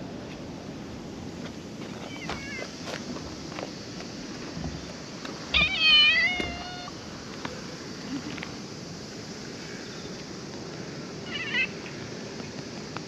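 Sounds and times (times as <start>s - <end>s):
cat meowing: 5.5s - 7.0s, 11.3s - 11.7s.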